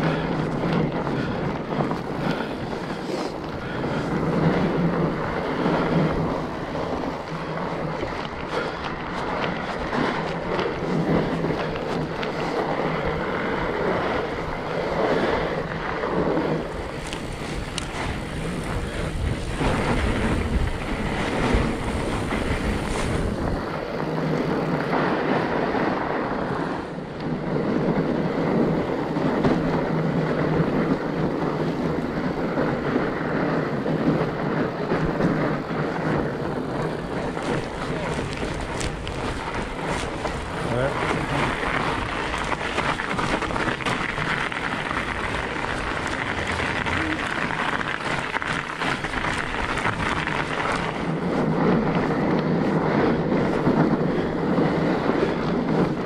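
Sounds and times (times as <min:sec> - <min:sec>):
bike tyre riding noise: 0:00.0 - 0:56.0
wind on microphone: 0:00.0 - 0:56.0
bike knocking over bumps: 0:34.9 - 0:54.0.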